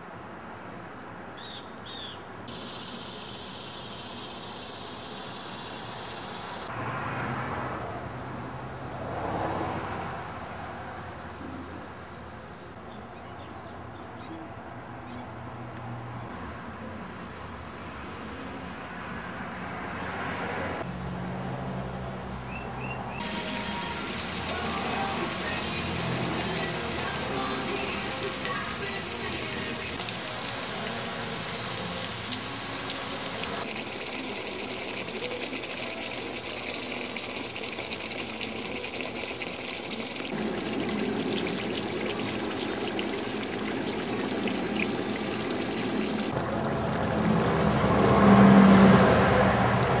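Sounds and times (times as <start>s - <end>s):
food sizzling and bubbling: 2.5s - 6.7s, 23.2s - 50.0s.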